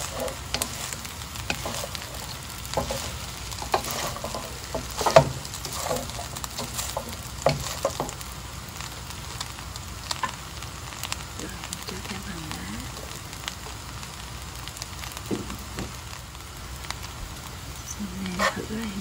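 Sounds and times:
wooden spatula scraping a pan: 0:00.0 - 0:08.3, 0:18.2 - 0:19.0
rice sizzling in a frying pan: 0:00.0 - 0:19.0.

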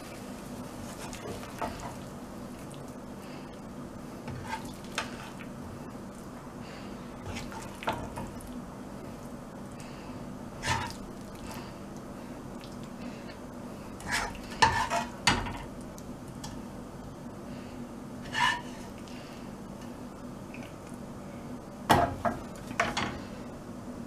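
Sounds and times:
spatula stirring in a pan: 0:00.0 - 0:02.7, 0:04.0 - 0:05.6, 0:07.2 - 0:08.4, 0:10.6 - 0:11.1, 0:13.9 - 0:15.4, 0:18.2 - 0:19.0
steady low hum: 0:00.0 - 0:24.0
spatula scraping and clinking on pan: 0:14.0 - 0:15.2.

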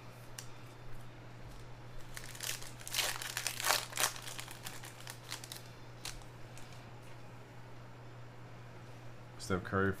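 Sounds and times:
foil wrapper crinkling: 0:01.5 - 0:06.8.

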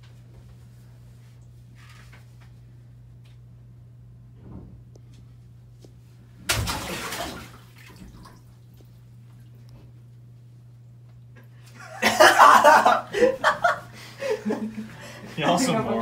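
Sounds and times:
steady low hum: 0:00.0 - 0:16.0
splash in bathtub: 0:06.4 - 0:08.5.

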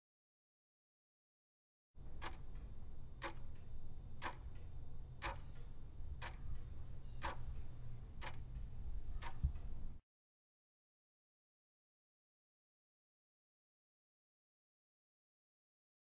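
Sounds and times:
low steady hum: 0:02.0 - 0:10.0
clock ticking: 0:02.1 - 0:10.0.

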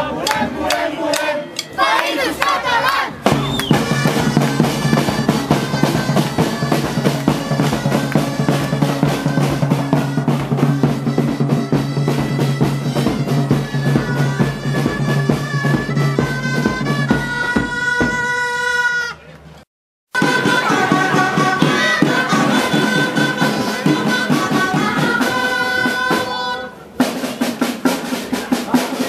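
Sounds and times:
wooden wind pipes playing: 0:00.0 - 0:19.4, 0:20.2 - 0:29.0
snare and bass drums beating: 0:03.1 - 0:18.4, 0:27.0 - 0:29.0.

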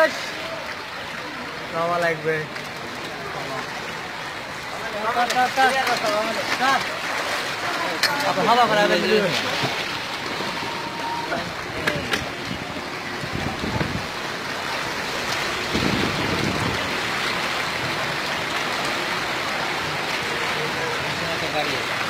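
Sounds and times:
heavy rain hissing: 0:08.8 - 0:22.0.

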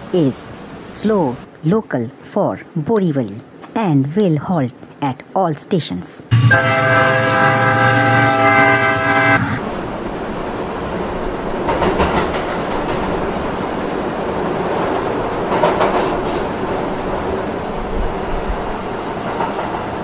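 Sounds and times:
train horn blast: 0:06.3 - 0:09.6
train rumbling: 0:06.3 - 0:20.0
wheels clacking over rail joints: 0:11.6 - 0:13.3.

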